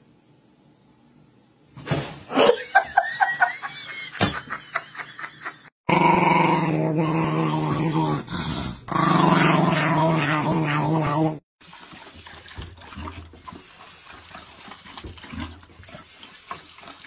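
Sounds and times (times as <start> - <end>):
small dog growling: 5.9 - 11.4.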